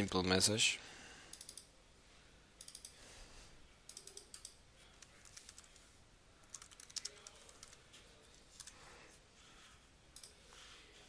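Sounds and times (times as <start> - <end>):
keyboard typing: 3.9 - 7.8, 8.5 - 8.8.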